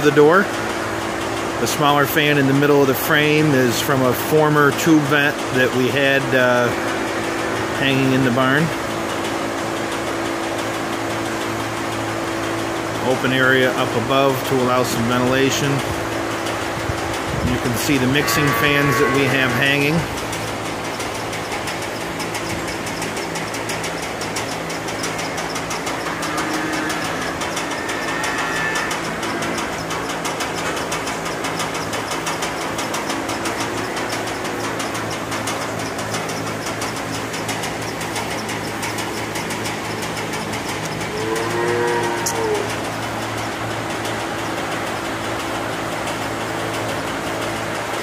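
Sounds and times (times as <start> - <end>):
fans humming and whirring: 0.0 - 48.0
calves bawling: 17.5 - 44.8.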